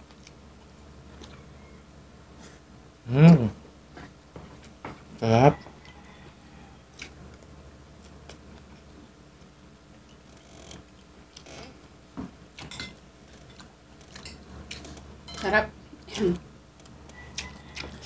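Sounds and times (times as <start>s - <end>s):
mouth eating sounds: 3.0s - 4.1s.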